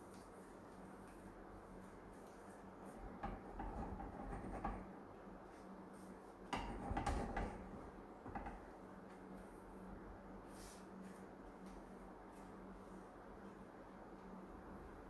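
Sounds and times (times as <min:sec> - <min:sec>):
steady low hum: 0:00.0 - 0:15.0
frying pan knocking on metal grate: 0:03.1 - 0:04.8, 0:06.6 - 0:08.7.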